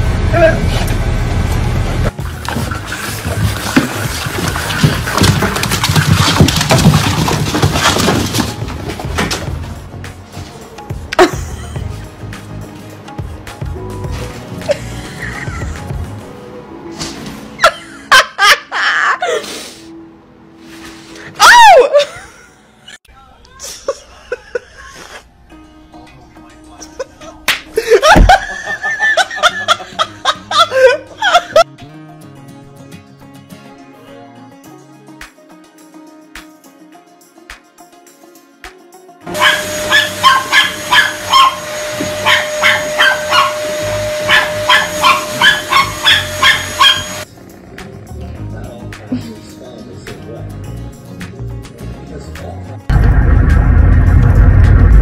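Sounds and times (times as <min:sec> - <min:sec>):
background music: 0:02.1 - 0:23.0, 0:23.9 - 0:54.3
laughter: 0:11.2 - 0:11.9, 0:14.6 - 0:16.0, 0:17.6 - 0:19.4, 0:21.9 - 0:23.0, 0:23.6 - 0:25.3, 0:26.8 - 0:31.7
dog barking: 0:39.3 - 0:47.2
vacuum cleaner motor whine: 0:39.3 - 0:47.2
cat crying: 0:39.4 - 0:47.2.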